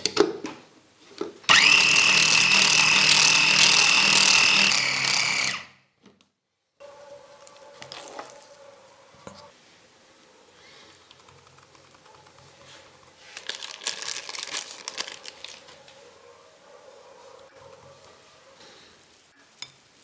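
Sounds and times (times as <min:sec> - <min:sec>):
plastic crinkling: 0:11.1 - 0:16.0.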